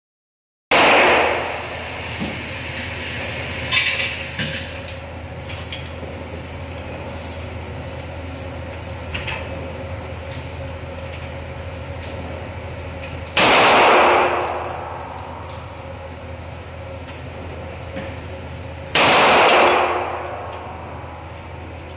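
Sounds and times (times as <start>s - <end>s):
loud pistol shots: 0.7s - 1.6s, 13.4s - 14.6s, 18.9s - 20.2s
steady low hum: 0.7s - 21.9s.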